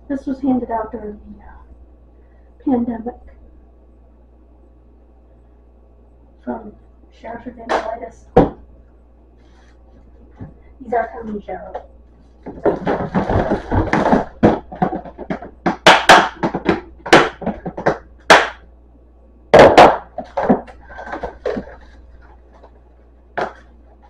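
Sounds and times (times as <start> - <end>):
boxes and bags knocking and rustling: 12.4 - 18.5, 19.5 - 22.7.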